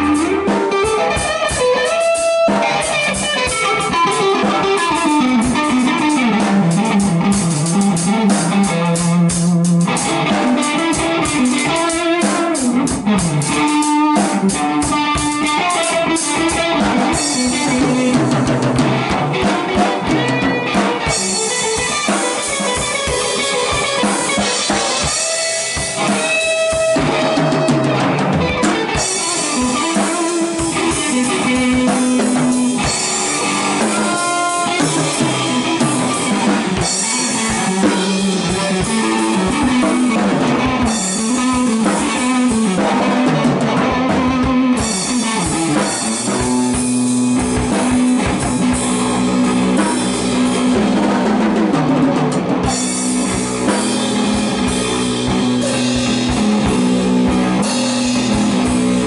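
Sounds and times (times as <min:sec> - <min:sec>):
drum kit: 0:00.0 - 0:59.0
electric guitar blues riff: 0:00.0 - 0:59.0.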